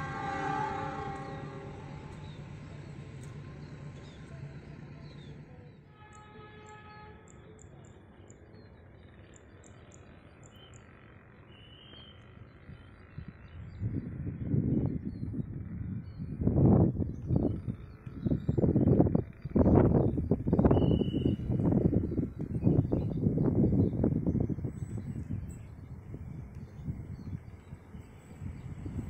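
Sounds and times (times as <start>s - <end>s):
locomotive horn: 0.0s - 3.4s, 5.9s - 7.4s
loud rough noise: 0.0s - 5.0s
faint train horn chord: 0.0s - 7.6s
birds chirping: 0.0s - 8.8s, 17.0s - 29.0s
rumble of passing train: 0.0s - 29.0s.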